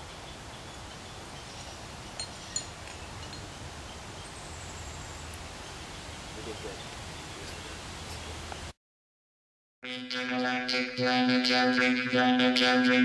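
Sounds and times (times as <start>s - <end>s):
rustling leaves: 0.0s - 8.7s.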